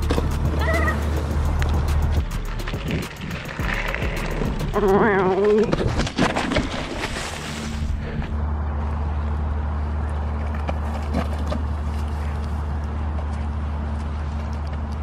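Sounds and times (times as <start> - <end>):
bike clattering and scraping on gravel: 0.0 - 8.4, 10.4 - 12.4
steady low hum: 0.0 - 15.0
person yelling: 0.6 - 1.1.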